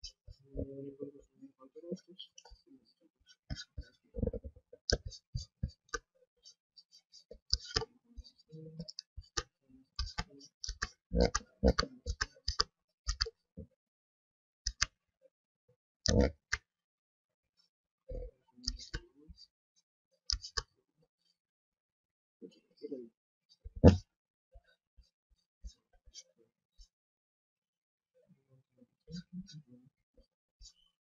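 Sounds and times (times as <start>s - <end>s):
computer mouse clicking: 7.5s - 7.9s, 8.8s - 13.4s, 14.7s - 15.0s, 16.1s - 16.6s, 18.6s - 19.0s, 20.3s - 20.7s.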